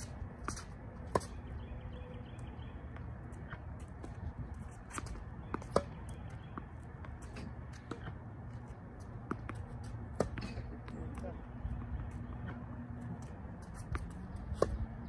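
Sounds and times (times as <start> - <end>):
racket striking tennis ball: 4.8 - 8.2, 9.1 - 10.9, 13.8 - 14.9
ball bouncing on court: 4.9 - 15.0.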